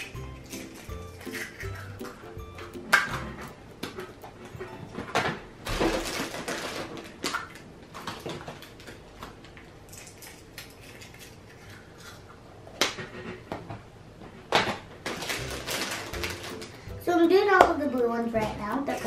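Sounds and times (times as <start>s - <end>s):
plastic eggs clicking and clattering: 0.0s - 12.2s, 14.6s - 19.0s
rustling: 15.0s - 16.9s.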